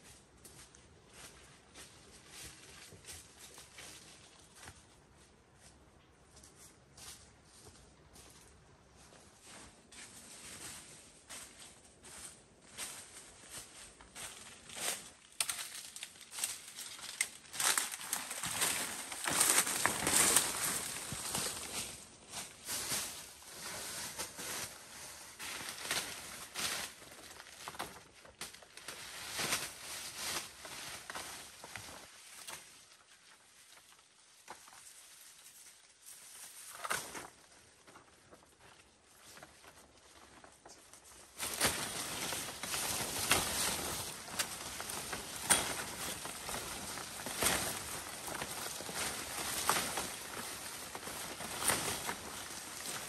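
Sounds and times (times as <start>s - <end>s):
leaves and undergrowth rustling: 0.0s - 53.0s
leaf stalks snapping: 14.8s - 21.7s, 41.4s - 53.0s.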